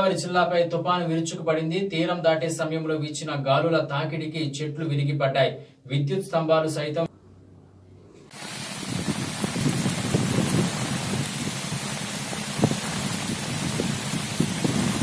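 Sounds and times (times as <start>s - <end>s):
heavy rain pouring: 8.3s - 15.0s
wind on the microphone: 8.4s - 15.0s.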